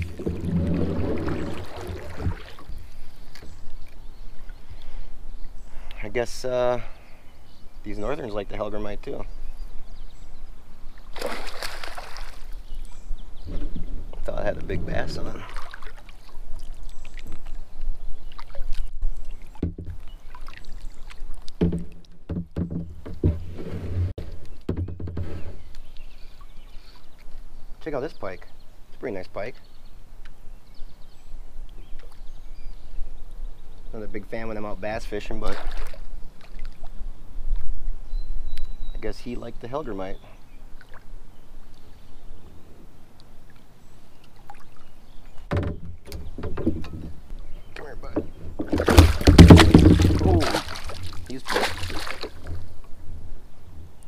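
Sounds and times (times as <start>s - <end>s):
fish splashing: 0.0s - 2.8s, 11.0s - 12.6s, 15.4s - 17.6s, 48.6s - 52.6s
knocks and rubbing on plastic kayak: 19.6s - 20.0s, 21.6s - 25.7s, 45.5s - 47.2s, 48.1s - 50.9s.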